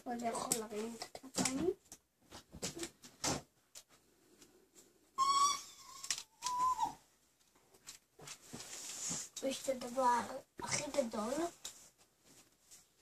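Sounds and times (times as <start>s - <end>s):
plastic pieces clicking: 5.9s - 6.6s.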